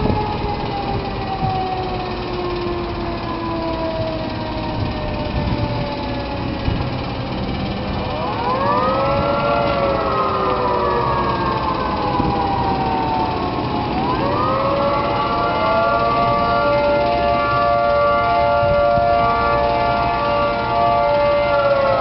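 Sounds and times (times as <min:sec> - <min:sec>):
low machinery rumble: 0:00.0 - 0:22.0
warning siren multi-tone chord: 0:00.0 - 0:22.0.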